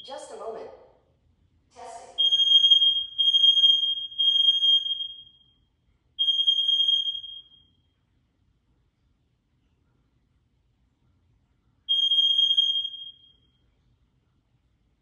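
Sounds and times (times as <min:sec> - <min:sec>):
high-pitched alarm beeps: 0:02.2 - 0:05.6, 0:06.2 - 0:07.7, 0:11.9 - 0:13.5.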